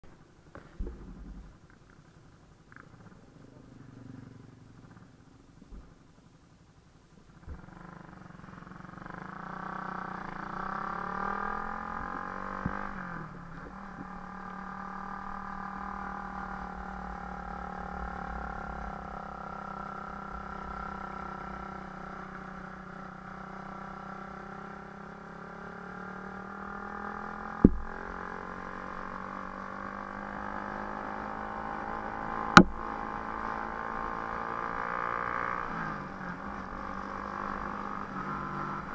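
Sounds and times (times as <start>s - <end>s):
vehicle engine running: 0.0s - 38.9s
sharp knocks: 27.6s - 28.0s, 32.6s - 32.8s.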